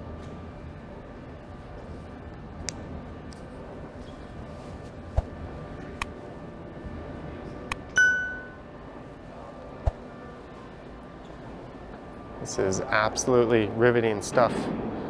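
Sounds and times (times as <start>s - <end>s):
steady platform hum: 0.0s - 15.0s
high metallic ding: 8.0s - 8.6s.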